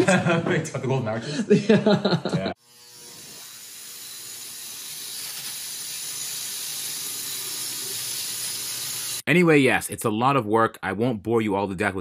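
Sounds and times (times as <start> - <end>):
angle grinder grinding steel: 2.6 - 9.2.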